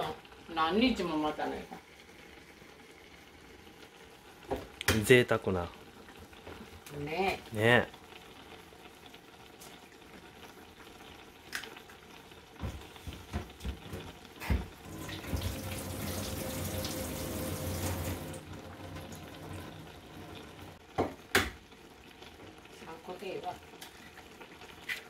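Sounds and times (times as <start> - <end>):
kitchen tap running: 12.6 - 22.6.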